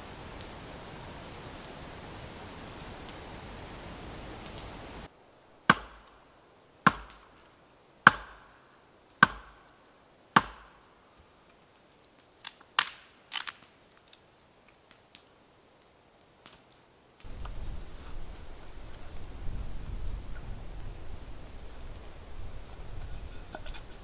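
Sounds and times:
axe chopping into a log: 5.7s - 6.1s, 6.9s - 7.3s, 8.1s - 8.5s, 9.2s - 9.6s, 10.4s - 10.8s.

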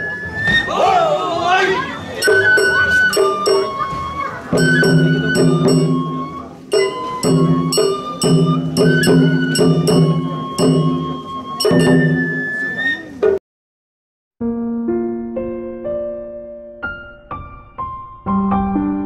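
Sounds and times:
bamboo flute: 0.0s - 13.4s
drums: 1.9s - 13.4s
small metal gong: 2.2s - 12.7s
low sustained tones: 2.2s - 13.1s.

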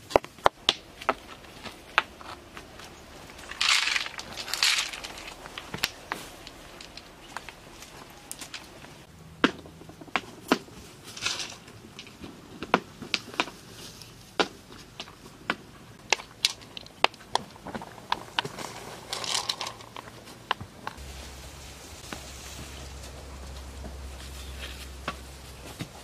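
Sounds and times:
pebbles clicking together: 1.0s - 8.8s, 16.0s - 20.2s.

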